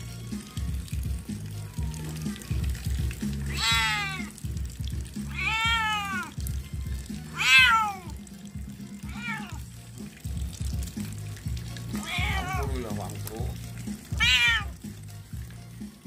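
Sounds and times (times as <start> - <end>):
background music with bass: 0.0 - 16.0
cat meowing: 1.5 - 2.7, 3.4 - 4.4, 5.3 - 6.4, 7.2 - 8.2, 9.0 - 9.7, 11.9 - 13.0, 14.1 - 14.8.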